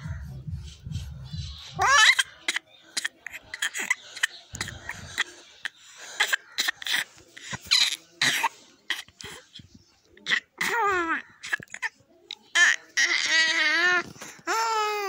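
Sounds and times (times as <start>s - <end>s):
infant coughing noises: 1.8s - 13.2s.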